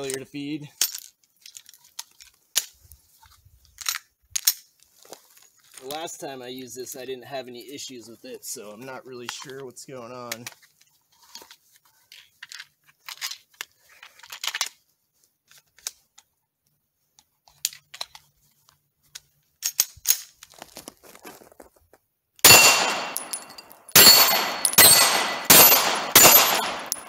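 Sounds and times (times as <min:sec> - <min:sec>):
pistol handling clicks and rattles: 0:00.8 - 0:02.8, 0:03.7 - 0:04.7, 0:12.2 - 0:14.8, 0:17.5 - 0:18.3, 0:19.1 - 0:20.5, 0:22.6 - 0:27.0
pistol shots: 0:22.4 - 0:27.0.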